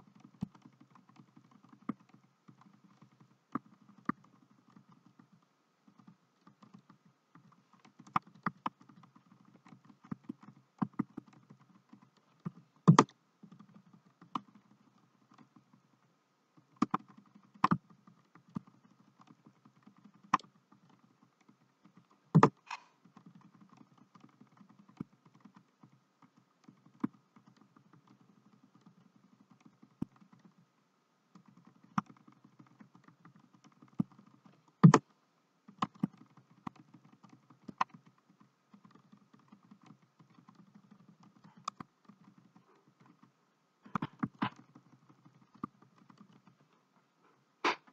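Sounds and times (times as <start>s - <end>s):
faint background hum: 0.0s - 47.9s
computer keyboard clicks: 6.0s - 14.7s, 16.8s - 30.6s, 31.4s - 35.0s.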